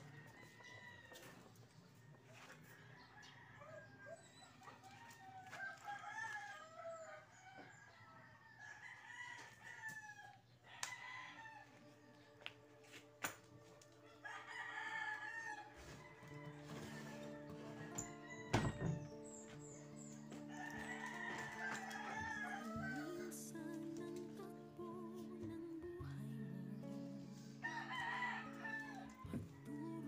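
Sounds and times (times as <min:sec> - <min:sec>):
roosters crowing: 0:05.0 - 0:12.1, 0:14.0 - 0:19.2, 0:20.1 - 0:23.6, 0:27.6 - 0:30.0
music: 0:11.1 - 0:30.0.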